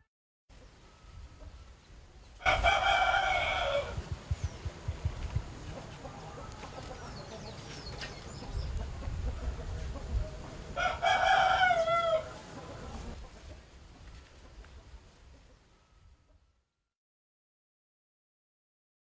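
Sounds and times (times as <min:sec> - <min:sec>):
rooster crowing: 0:02.4 - 0:04.1, 0:10.8 - 0:13.1.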